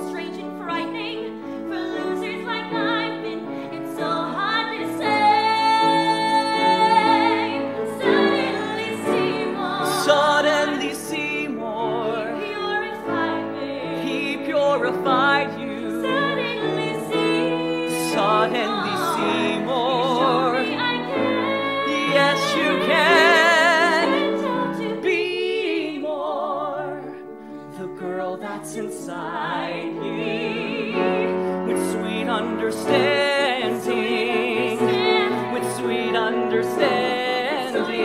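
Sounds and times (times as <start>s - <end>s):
woman singing operatically: 14.1s - 27.1s.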